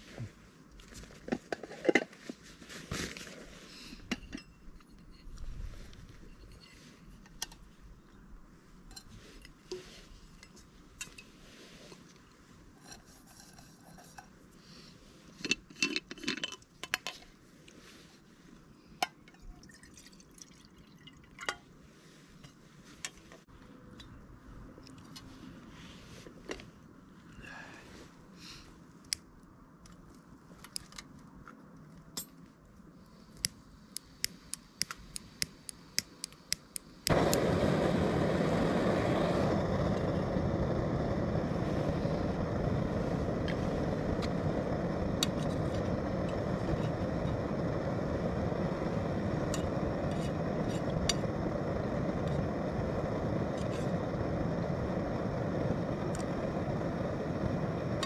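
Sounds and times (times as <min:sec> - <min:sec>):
gas stove burner roaring: 0:34.0 - 0:58.0.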